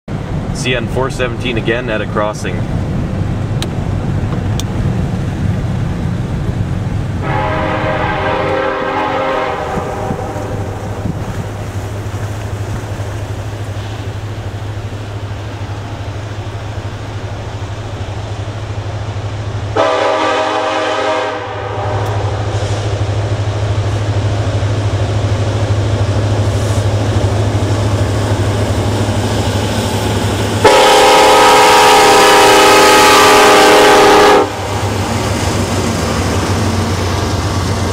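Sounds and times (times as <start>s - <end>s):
locomotive horn blasts: 7.2s - 11.2s, 19.8s - 22.8s, 30.6s - 34.8s.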